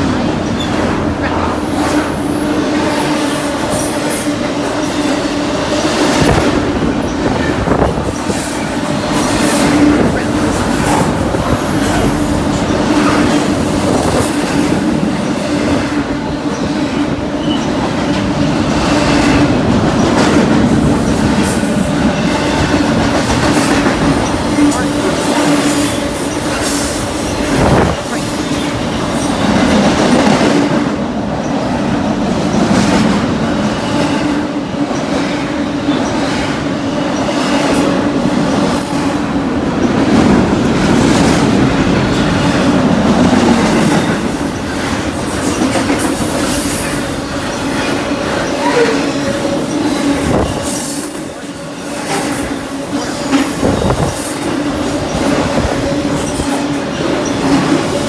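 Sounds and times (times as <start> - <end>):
train wheels rumbling and clattering: 0.0 - 58.0.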